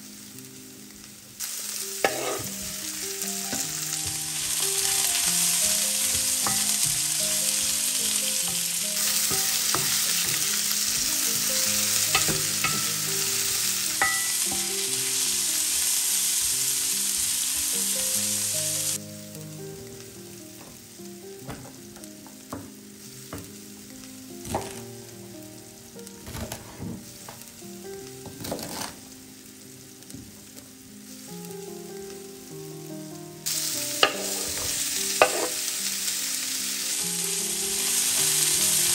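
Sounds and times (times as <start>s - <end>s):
vegetables sizzling in oil: 0.0s - 38.9s.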